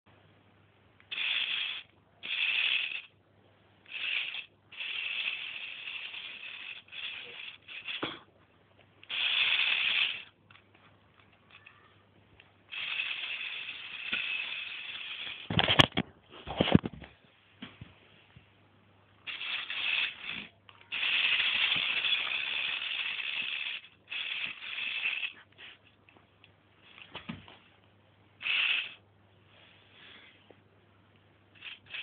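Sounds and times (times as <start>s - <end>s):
toy electric motor and gears running: 1.1s - 3.1s, 3.8s - 8.3s, 9.0s - 11.9s, 12.7s - 16.0s, 19.2s - 25.5s, 28.4s - 29.0s, 31.6s - 32.0s.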